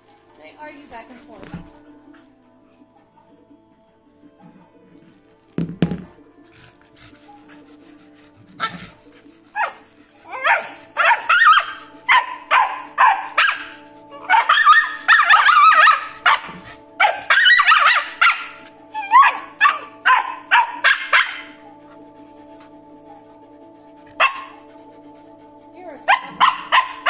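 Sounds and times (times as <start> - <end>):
puppies barking and yipping: 6.7 - 27.0.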